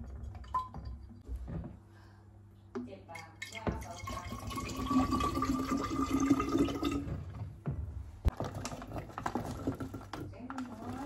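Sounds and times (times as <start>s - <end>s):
water pouring into glass carafe: 3.2s - 7.2s.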